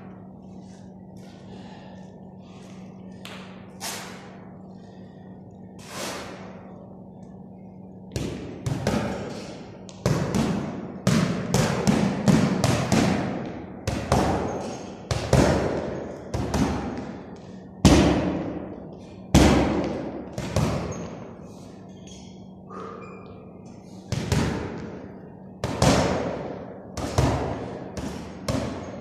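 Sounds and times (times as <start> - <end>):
gloved punches on heavy bag: 10.0 - 17.2, 17.8 - 18.6, 19.3 - 20.9, 25.6 - 29.0.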